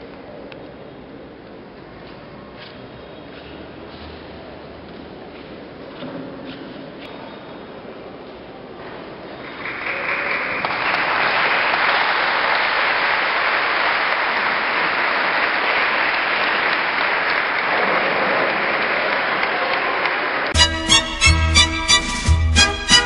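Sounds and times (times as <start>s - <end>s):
congregation applauding: 9.4s - 21.4s.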